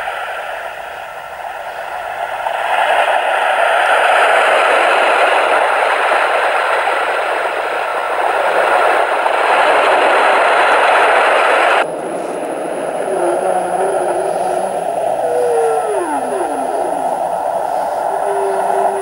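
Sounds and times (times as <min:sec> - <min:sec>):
rain sound hiss from speaker: 0:00.0 - 0:19.0
whale song with low gliding calls: 0:11.9 - 0:19.0.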